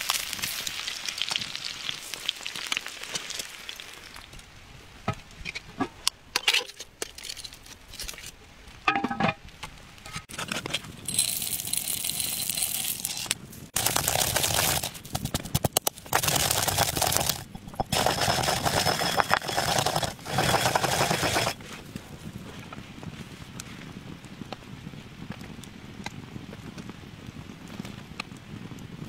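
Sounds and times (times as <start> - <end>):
pestle grinding in mortar: 11.1 - 21.6.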